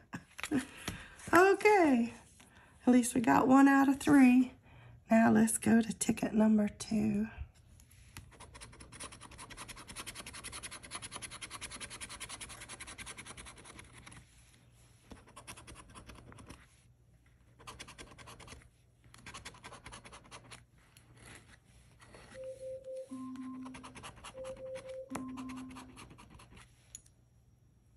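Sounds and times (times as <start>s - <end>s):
scratching lottery ticket coating: 8.1s - 14.4s, 17.4s - 22.4s.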